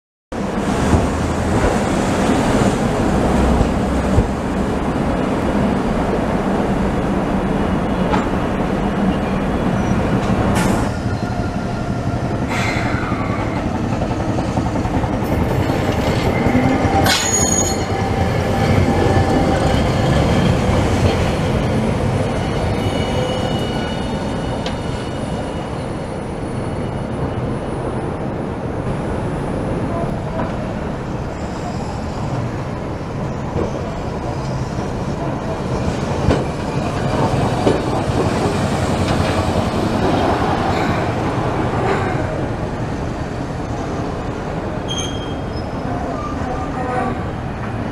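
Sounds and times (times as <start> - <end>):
streetcar rumbling on rails: 0.3 - 47.9
rail joint clicks: 8.0 - 8.4, 10.1 - 11.4, 12.4 - 18.2, 24.6 - 24.9, 33.5 - 42.4
wheels squealing: 44.9 - 46.4.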